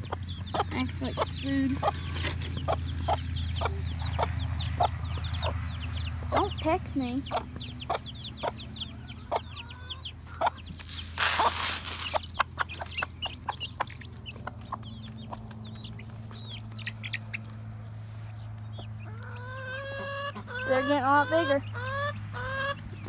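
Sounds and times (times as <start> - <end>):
hen calling: 0.0 - 17.5, 18.2 - 23.0
chicks peeping: 0.0 - 23.0
rustling scrape: 10.8 - 12.4.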